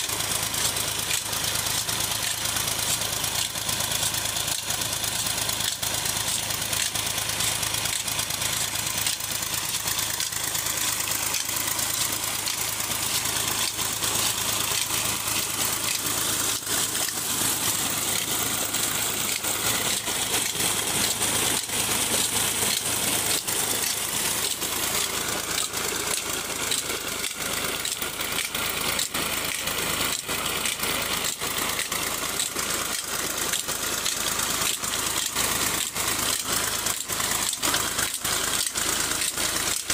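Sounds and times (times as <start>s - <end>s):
sharp ticks: 0.0s - 39.9s
tractor diesel engine running: 0.0s - 39.9s
water pouring into a tank: 0.0s - 39.9s.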